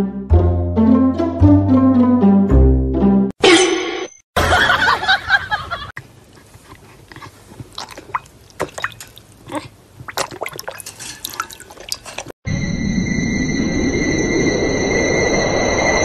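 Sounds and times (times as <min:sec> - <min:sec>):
dog lapping water: 0:06.2 - 0:12.3.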